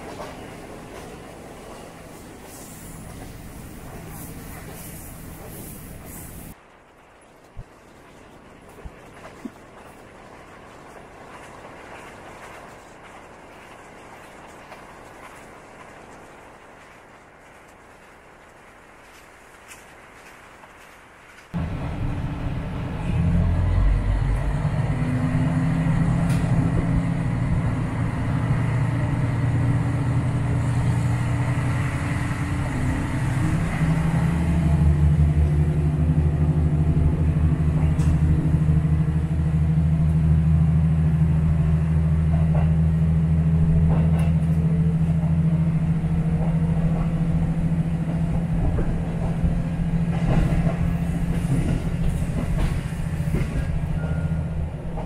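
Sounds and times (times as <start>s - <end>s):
diesel railcar engine drone: 21.5s - 55.0s
wheels clicking over rail joints: 41.5s - 55.0s.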